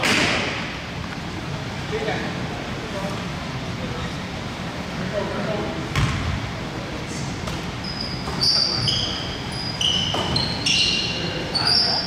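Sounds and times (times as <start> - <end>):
basketball bouncing: 5.9 - 6.4
shoes squeaking on court floor: 7.4 - 12.0.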